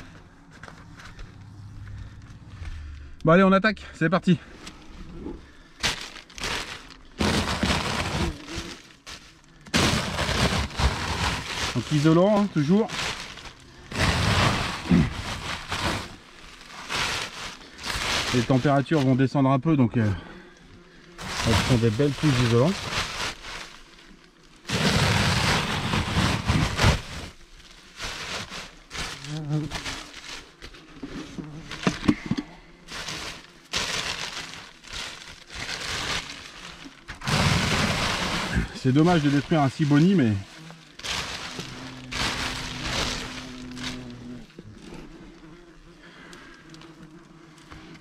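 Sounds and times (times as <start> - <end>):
papery wasp nest tearing: 4.6 - 19.3, 20.0 - 48.0
insulation crackling rustle: 5.5 - 19.4, 21.0 - 32.2, 32.8 - 45.5.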